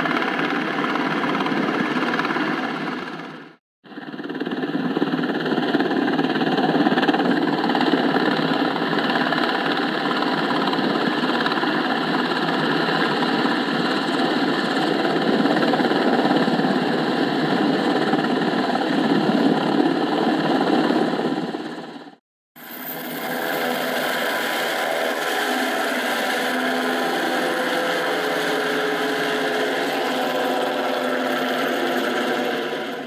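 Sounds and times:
rc helicopter rotors buzzing: 22.6s - 33.0s.

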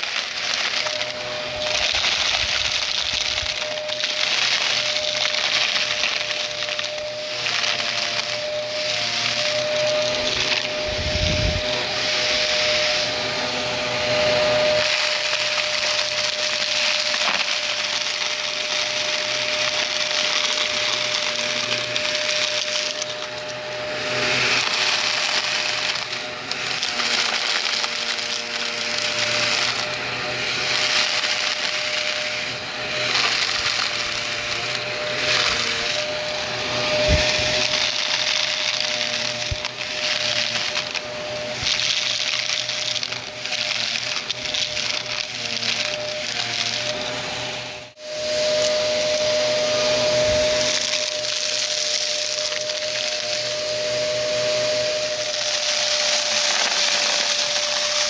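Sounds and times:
debris crackling through nozzle: 0.0s - 58.0s
vacuum cleaner motor whine: 0.0s - 58.0s.

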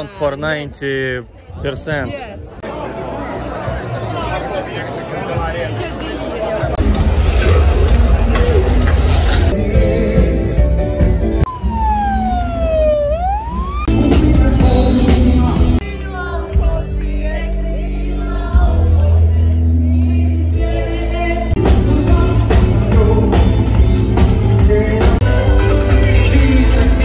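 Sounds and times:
live band playing: 5.2s - 11.8s, 13.8s - 27.0s
loud music: 6.8s - 12.4s, 13.6s - 27.0s
ambulance siren wailing: 11.4s - 14.0s.

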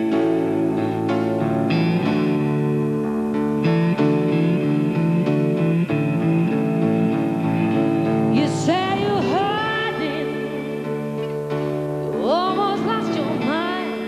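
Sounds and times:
slide guitar: 0.0s - 14.0s
bass and drums: 1.7s - 9.5s
person singing: 4.6s - 14.0s.

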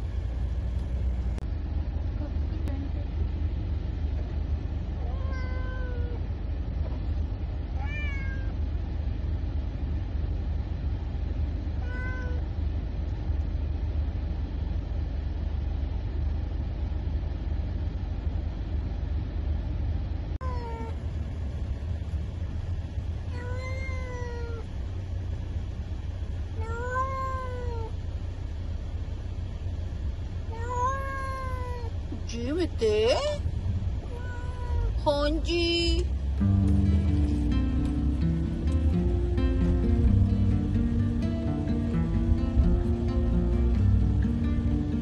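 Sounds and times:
low rumble of a car: 0.0s - 45.0s
cat meowing: 5.0s - 6.2s, 7.8s - 8.6s, 11.8s - 12.4s, 20.4s - 21.0s, 23.3s - 24.7s, 26.6s - 28.0s, 30.5s - 32.0s, 34.0s - 35.0s.

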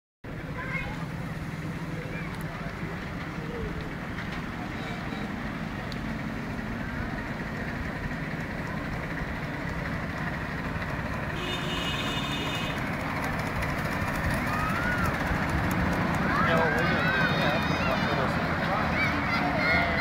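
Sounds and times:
faint voices: 0.3s - 7.4s, 13.5s - 20.0s
miniature steam train rumbling: 0.3s - 20.0s
high-pitched train whistle: 11.4s - 12.8s.

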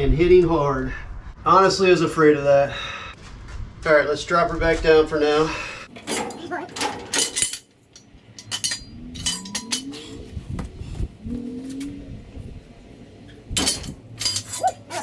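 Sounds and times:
metal parts clicking and clinking: 5.9s - 10.2s, 13.6s - 15.0s.

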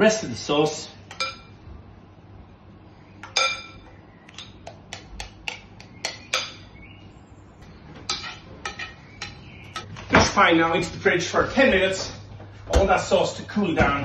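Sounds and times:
spoon clinking against bowl: 1.1s - 1.5s, 3.2s - 3.8s
spoon tapping: 3.3s - 6.6s.

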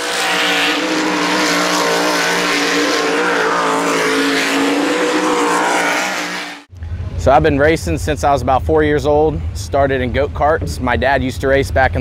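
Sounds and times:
race car engine running hard: 0.0s - 7.2s.

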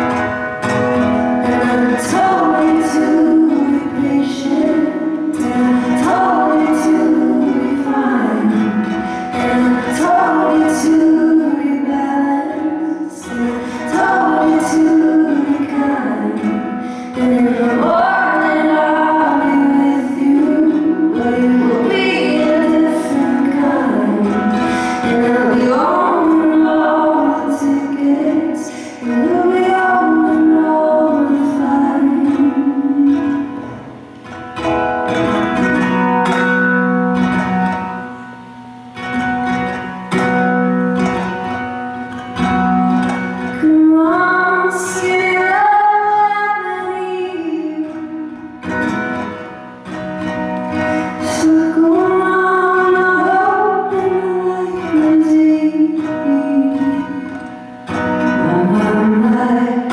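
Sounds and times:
strummed ukulele: 0.0s - 59.9s
women singing in harmony: 1.4s - 33.9s, 43.4s - 49.2s, 51.0s - 57.5s, 58.2s - 59.9s.

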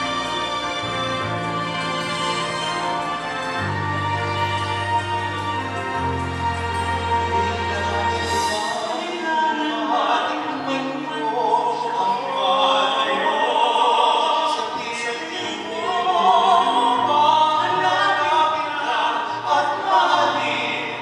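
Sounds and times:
men singing operatic duet: 6.8s - 21.0s.

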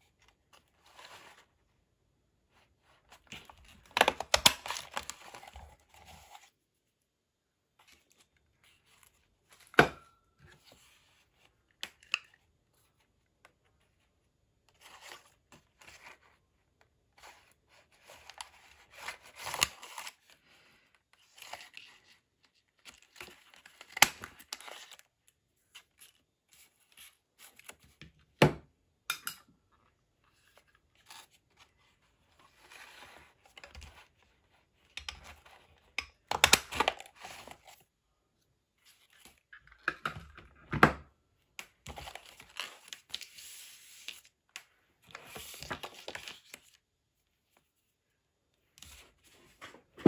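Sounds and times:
paper rustling and crinkling: 45.0s - 46.8s.

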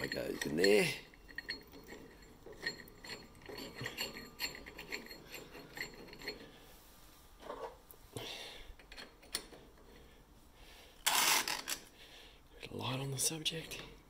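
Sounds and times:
metal parts clinking and clicking: 0.0s - 6.5s, 8.8s - 10.0s
metal rubbing: 0.0s - 7.8s.

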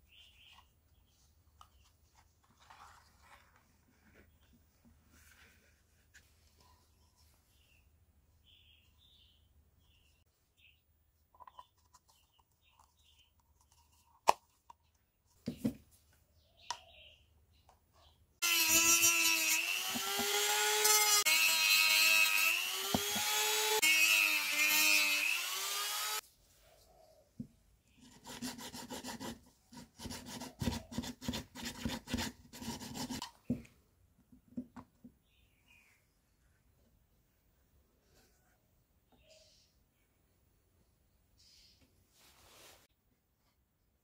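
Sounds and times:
rotary tool cutting plastic: 18.4s - 26.2s.

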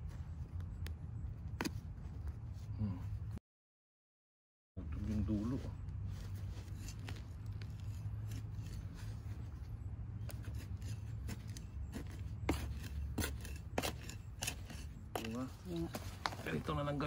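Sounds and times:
steady low hum: 0.0s - 3.4s
trowel scraping soil: 6.2s - 16.7s.

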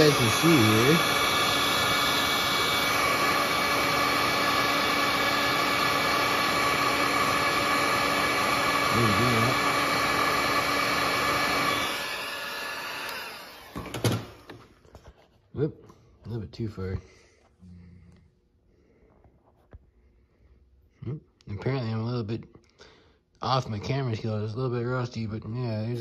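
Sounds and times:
electric motor whining: 0.0s - 14.5s.

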